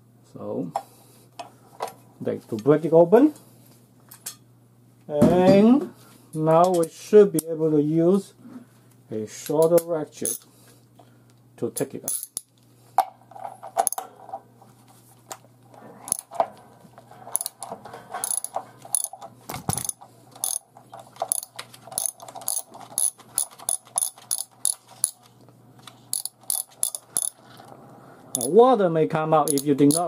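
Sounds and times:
socket ratchet clicking: 17.4s - 17.6s, 18.2s - 20.6s, 21.2s - 25.3s, 26.1s - 27.4s, 29.5s - 30.0s.

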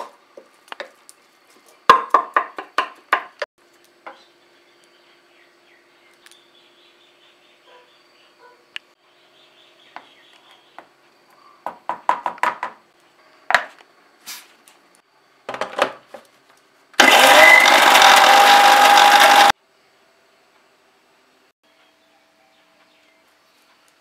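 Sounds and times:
electric mixer grinder running: 17.0s - 19.6s.

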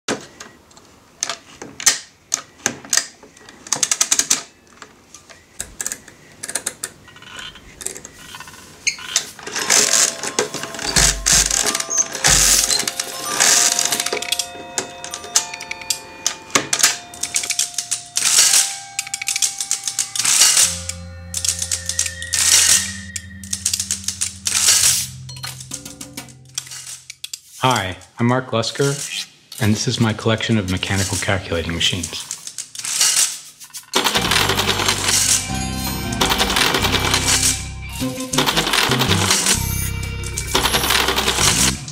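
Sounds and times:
mechanical calculating machines clattering: 5.6s - 27.0s, 28.7s - 41.9s
music with held notes: 10.2s - 26.6s, 34.2s - 41.9s
deep low musical note: 20.9s - 26.7s.

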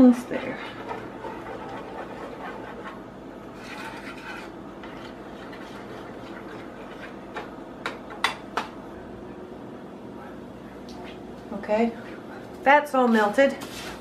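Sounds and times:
spoon stirring in metal saucepan: 0.3s - 8.7s.

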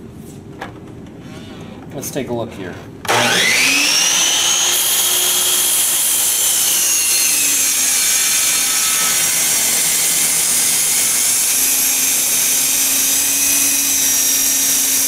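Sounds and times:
miter saw cutting wood: 3.1s - 15.0s.

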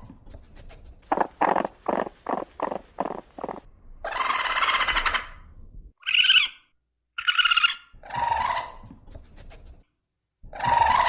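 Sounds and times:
raccoon crying: 4.0s - 5.4s, 6.0s - 6.6s, 7.2s - 8.9s, 10.5s - 11.0s.

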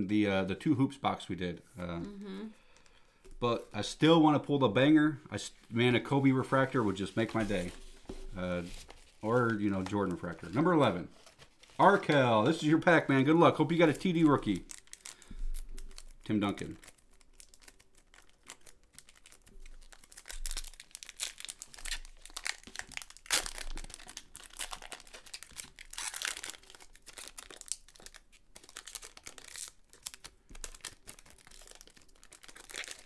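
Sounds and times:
foil wrapper crinkling and tearing: 13.7s - 33.0s.

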